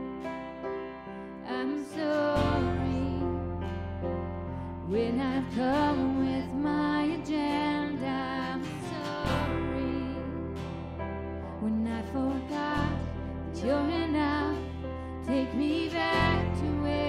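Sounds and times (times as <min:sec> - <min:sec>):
strummed acoustic guitar: 0:00.0 - 0:17.0
sustained sung melody: 0:11.6 - 0:17.0.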